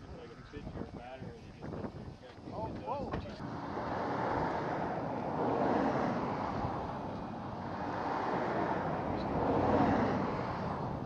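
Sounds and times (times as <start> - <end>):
outdoor rushing noise: 3.4 - 11.0.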